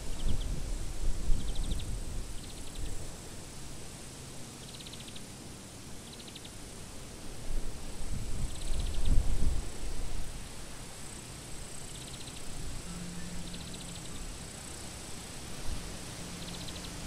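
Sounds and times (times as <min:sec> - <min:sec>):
wind buffeting microphone: 0:00.0 - 0:03.0, 0:08.0 - 0:10.3
insect chirping: 0:00.0 - 0:17.0.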